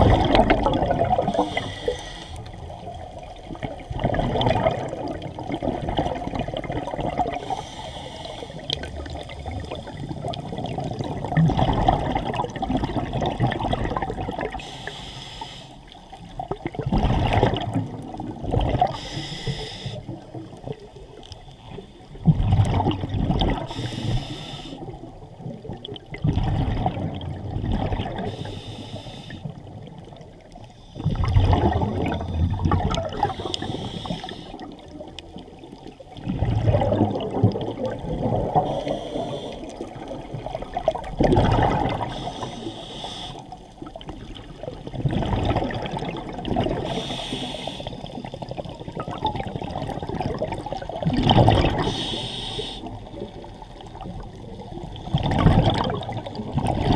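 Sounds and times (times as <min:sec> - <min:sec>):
exhaled bubbles rushing underwater: 0:00.0 - 0:15.0, 0:15.8 - 0:56.9
regulator inhalation hiss: 0:01.4 - 0:02.5, 0:07.4 - 0:08.6, 0:14.6 - 0:15.8, 0:18.9 - 0:20.1, 0:23.7 - 0:24.9, 0:28.3 - 0:29.5, 0:33.2 - 0:34.7, 0:38.6 - 0:39.8, 0:42.1 - 0:43.6, 0:46.8 - 0:48.3, 0:51.8 - 0:53.0.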